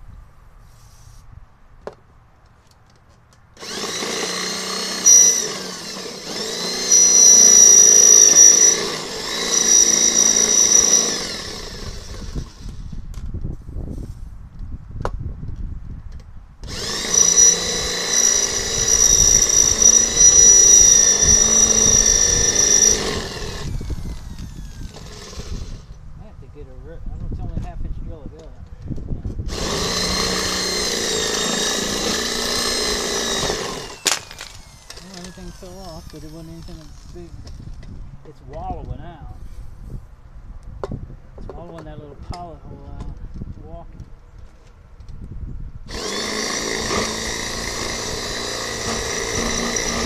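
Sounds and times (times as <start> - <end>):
electric drill whining: 3.6 - 13.0, 16.6 - 26.0, 29.4 - 37.8, 45.9 - 50.0.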